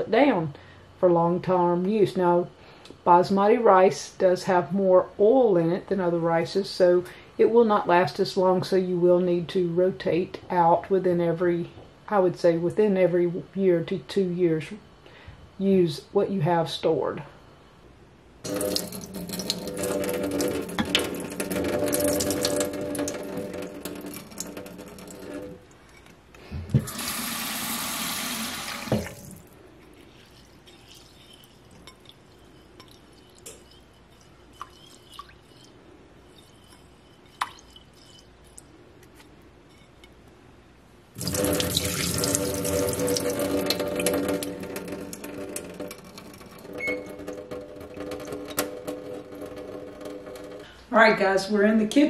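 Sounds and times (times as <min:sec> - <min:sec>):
tap running into steel sink: 0:18.5 - 0:25.6, 0:26.7 - 0:29.4, 0:41.2 - 0:50.6
faint water drips: 0:29.1 - 0:35.8.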